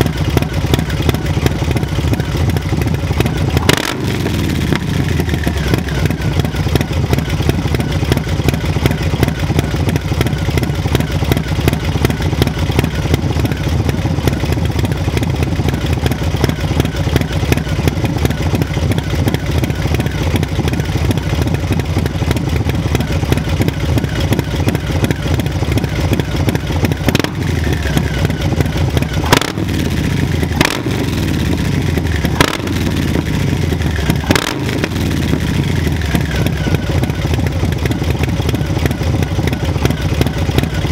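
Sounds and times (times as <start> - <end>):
motorcycle engine idling: 0.0 - 40.9
engine revving: 3.5 - 5.9, 27.0 - 37.2
sharp exhaust cracks: 26.8 - 38.0.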